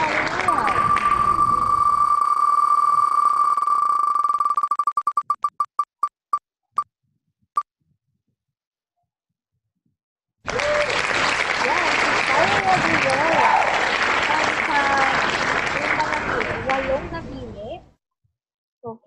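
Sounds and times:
applause sound effect: 0:00.0 - 0:01.9, 0:10.5 - 0:17.0.

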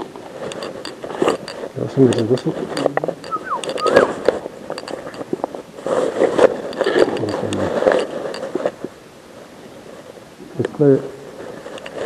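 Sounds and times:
clothing rubbing against microphone: 0:00.0 - 0:10.2
clicks and knocks: 0:00.5 - 0:05.5.

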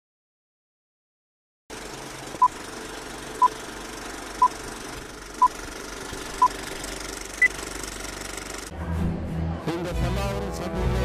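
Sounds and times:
film projector clatter and hiss: 0:01.7 - 0:08.7.

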